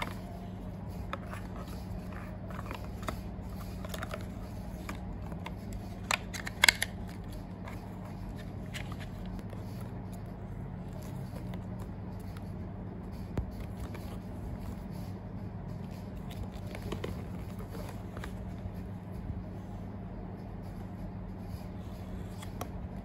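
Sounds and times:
cardboard and paper rustling: 0.0 - 12.6, 13.4 - 15.1, 15.8 - 19.1
steady low hum: 0.0 - 23.0.

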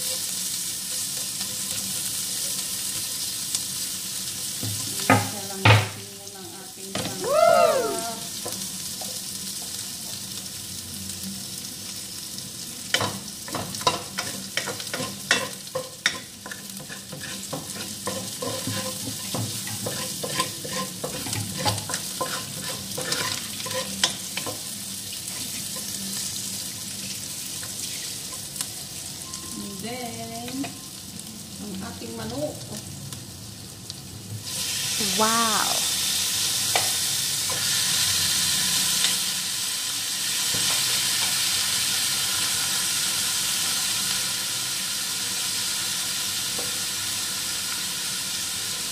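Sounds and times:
food sizzling in hot oil: 0.0 - 48.9
wooden spatula scraping a pot: 16.5 - 24.0.

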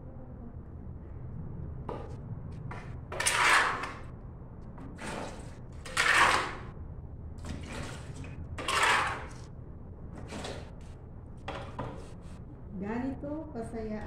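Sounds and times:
brush scraping tiled floor: 3.2 - 4.0, 5.0 - 6.6, 7.4 - 9.4.

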